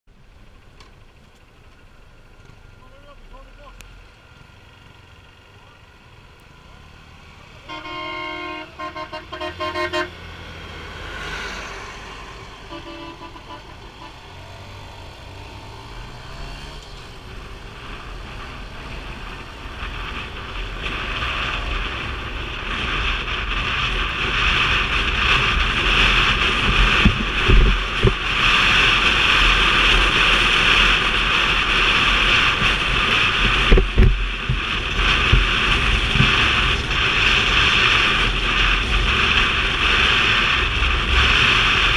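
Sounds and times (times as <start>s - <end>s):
motorbike engine accelerating: 2.4s - 41.9s
horn beeping: 7.6s - 10.3s, 12.5s - 14.4s
wind buffeting microphone: 13.4s - 41.9s.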